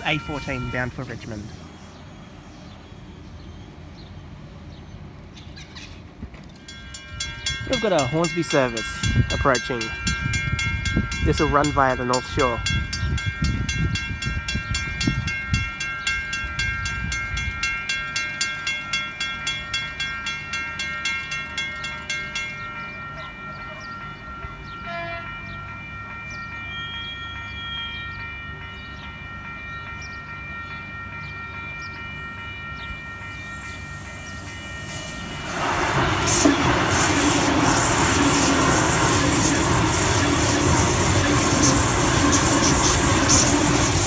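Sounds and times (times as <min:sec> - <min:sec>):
level crossing warning bells: 0:00.0 - 0:05.3, 0:06.5 - 0:44.0
electric train rushing past: 0:31.7 - 0:44.0
train wheel clatter: 0:35.4 - 0:44.0.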